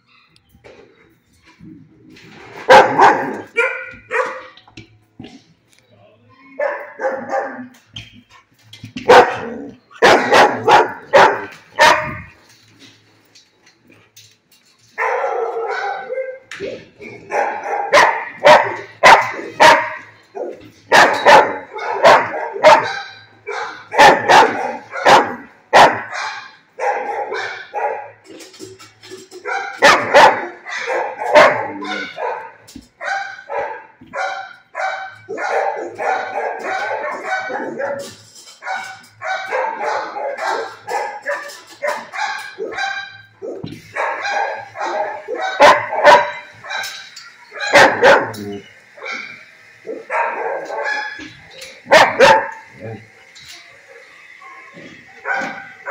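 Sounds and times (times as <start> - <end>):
dog barking: 2.6 - 4.6, 6.6 - 7.7, 9.1 - 12.3, 15.0 - 16.4, 17.1 - 28.2, 29.5 - 52.8, 55.2 - 55.9.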